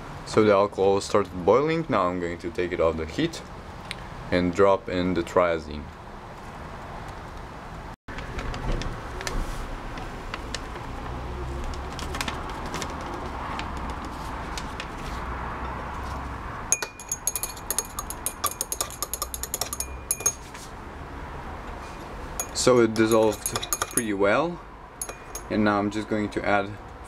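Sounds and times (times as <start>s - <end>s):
glass rod clinking in beaker: 16.7s - 20.5s, 22.4s - 24.1s, 25.0s - 25.5s.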